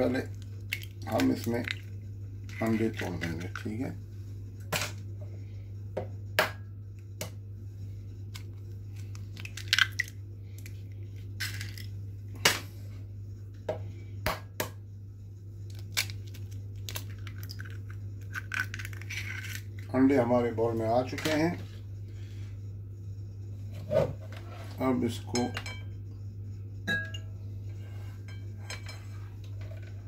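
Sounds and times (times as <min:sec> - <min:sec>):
eggshells cracking on glass bowl: 0:00.4 - 0:01.9, 0:09.0 - 0:10.8, 0:11.4 - 0:11.9, 0:15.7 - 0:19.9.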